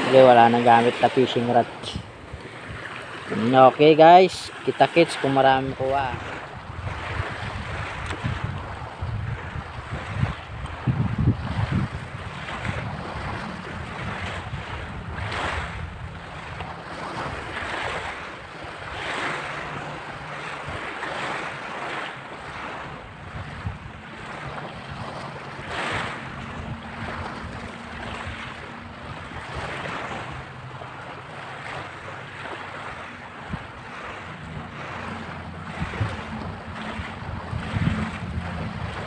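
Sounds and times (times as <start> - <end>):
waves washing onto pebble beach: 0.0 - 6.4, 12.3 - 30.3
wind buffeting microphone: 0.0 - 39.0.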